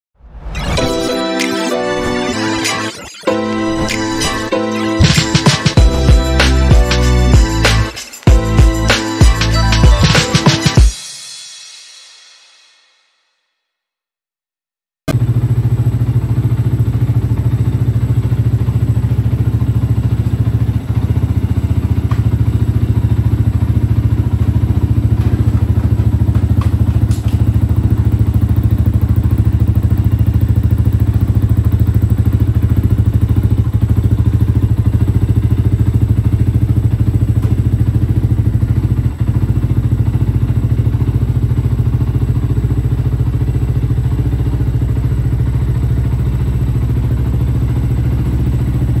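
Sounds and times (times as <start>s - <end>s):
motorcycle engine idling: 15.1s - 49.0s.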